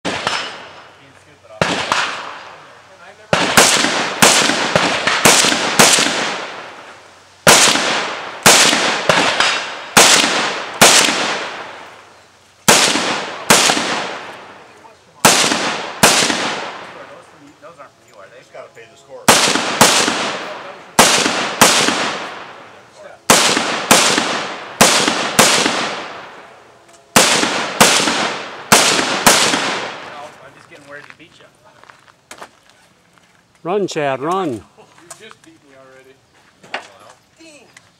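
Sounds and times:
rifle shots with echo: 0:00.0 - 0:00.9, 0:01.5 - 0:12.0, 0:12.6 - 0:17.2, 0:19.2 - 0:30.3.

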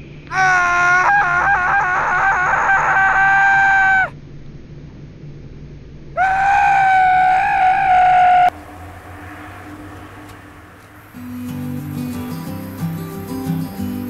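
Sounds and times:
high-pitched scream: 0:00.3 - 0:04.2, 0:06.2 - 0:11.6.

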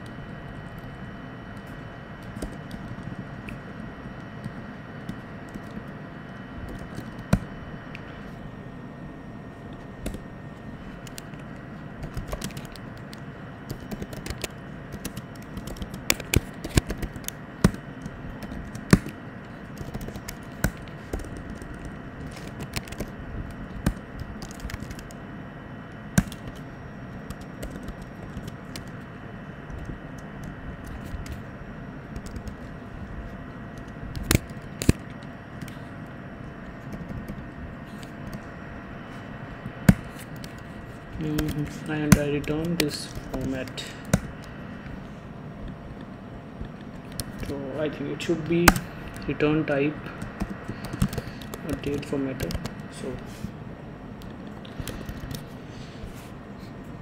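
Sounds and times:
keyboard typing: 0:01.5 - 0:05.9, 0:06.6 - 0:08.0, 0:09.7 - 0:10.2, 0:11.0 - 0:25.2, 0:26.1 - 0:29.1, 0:32.1 - 0:32.7, 0:33.8 - 0:35.8, 0:39.8 - 0:44.5, 0:50.2 - 0:53.2, 0:54.2 - 0:55.6.

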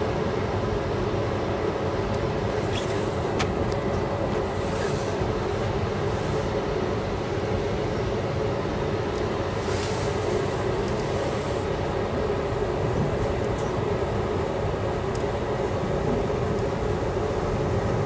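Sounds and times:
constant hum: 0:00.0 - 0:18.0
train wheels rumbling on rails: 0:00.0 - 0:18.0.

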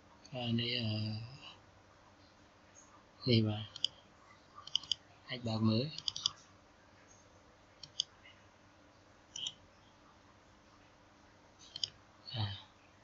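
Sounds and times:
faint steady hiss: 0:00.0 - 0:13.0
computer mouse clicks: 0:03.7 - 0:04.0, 0:04.6 - 0:05.0, 0:05.9 - 0:06.4, 0:07.8 - 0:08.1, 0:09.3 - 0:09.6, 0:11.6 - 0:12.0.

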